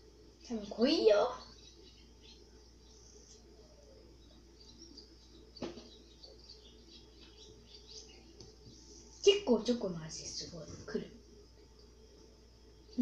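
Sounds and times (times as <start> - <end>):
faint high chirps: 0.0 - 9.4.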